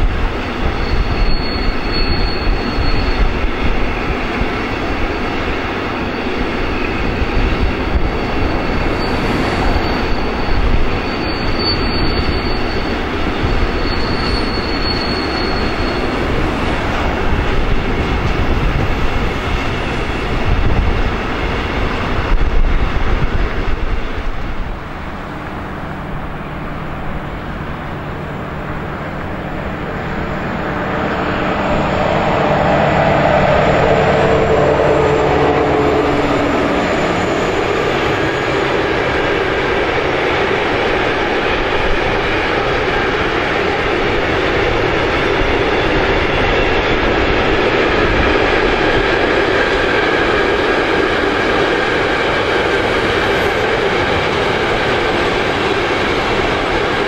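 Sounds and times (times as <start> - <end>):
diesel locomotive engine hum: 0.0 - 57.0
high wheel squeals: 0.1 - 22.6, 29.0 - 43.9.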